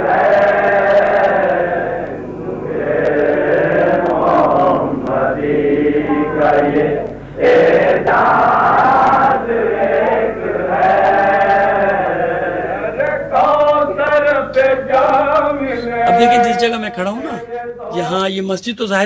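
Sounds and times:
man singing a slow chant: 0:07.4 - 0:18.2.

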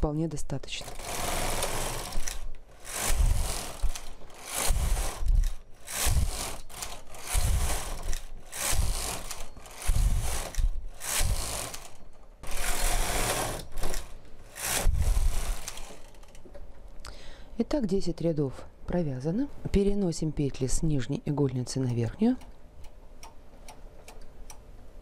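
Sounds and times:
knitting machine carriage rattling: 0:00.7 - 0:16.5.

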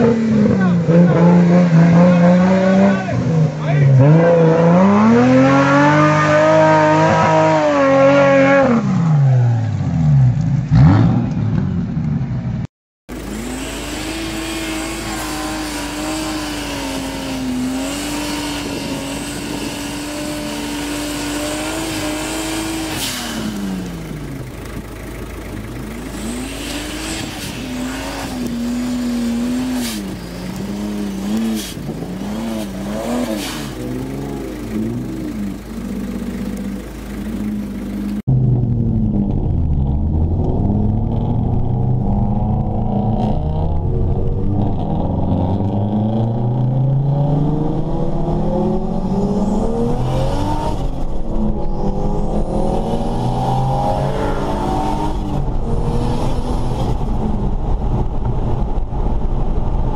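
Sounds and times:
truck engines revving: 0:00.0 - 0:59.9.

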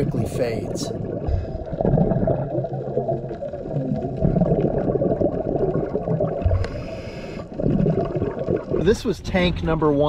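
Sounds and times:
muffled underwater rumble: 0:00.0 - 0:10.0
regulator exhale bubbles: 0:01.1 - 0:08.8.

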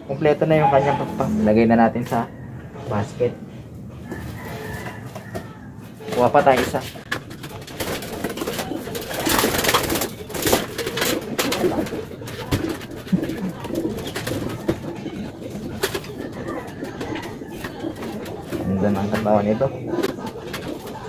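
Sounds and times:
pigeons cooing: 0:00.0 - 0:21.0
wings fluttering: 0:06.1 - 0:21.0.

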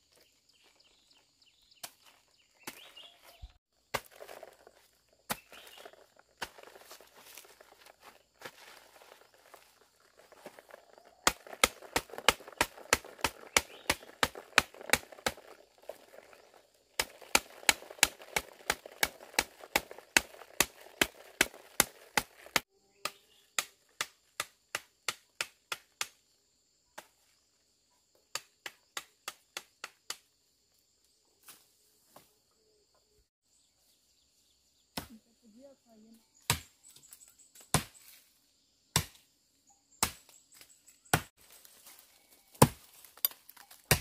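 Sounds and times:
sharp knocks on ant nest: 0:11.2 - 0:15.6, 0:38.9 - 0:39.2
rustle of falling debris: 0:41.4 - 0:44.0.

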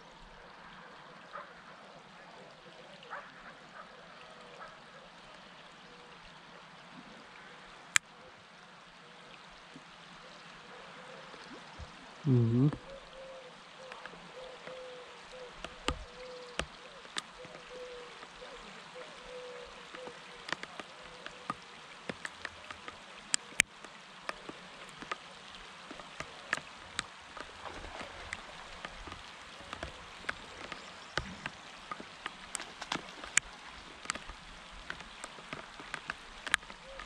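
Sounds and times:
rain hissing on a pond: 0:00.0 - 0:37.0
raindrops tapping: 0:13.8 - 0:37.0.

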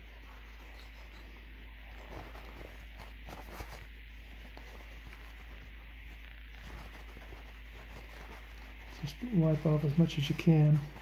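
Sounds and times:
paper towel rustling: 0:00.0 - 0:11.0.

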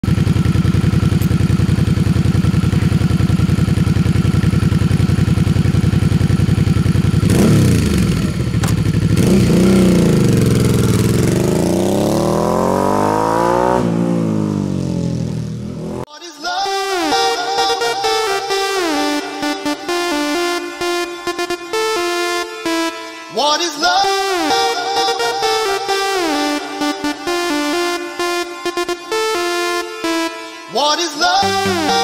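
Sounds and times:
motorcycle engine idling and revving: 0:00.0 - 0:16.1.

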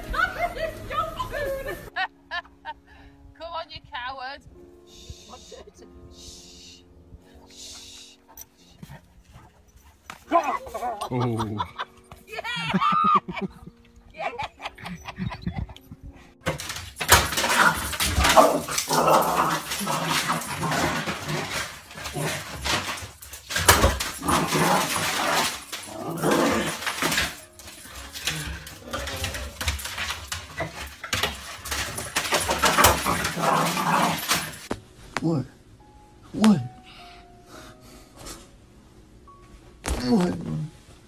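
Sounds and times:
dogs growling in rough play: 0:16.5 - 0:34.7.

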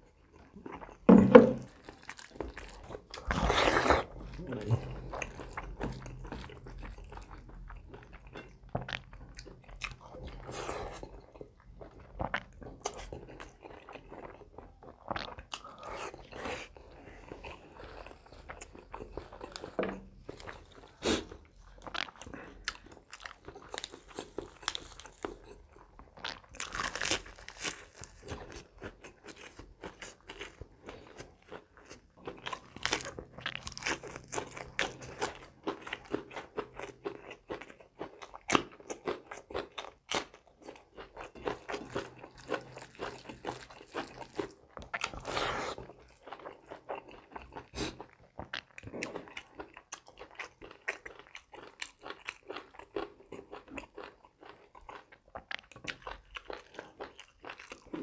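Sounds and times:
person chewing and crunching: 0:00.0 - 0:58.0.

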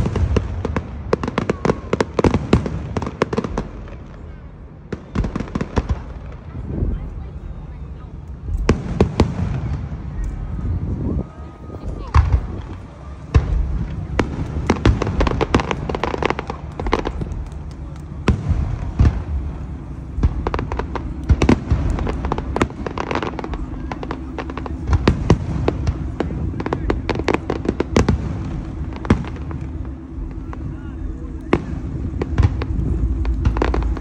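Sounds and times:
fireworks bangs and crackles: 0:00.0 - 0:34.0
low rumble: 0:08.2 - 0:34.0.

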